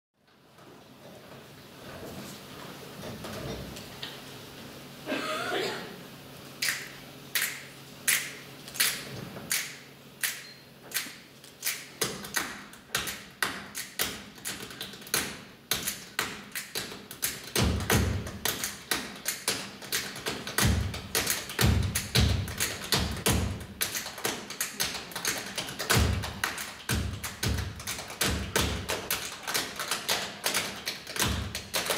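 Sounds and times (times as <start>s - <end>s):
finger snaps: 6.6s - 15.0s
hand claps: 6.6s - 31.9s.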